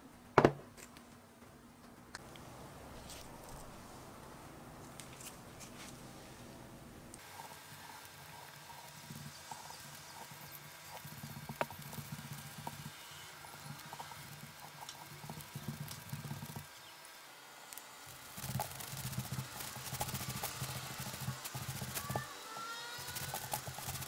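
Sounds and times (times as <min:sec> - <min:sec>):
hands rubbing salt into meat: 0:18.4 - 0:22.3, 0:23.0 - 0:24.0.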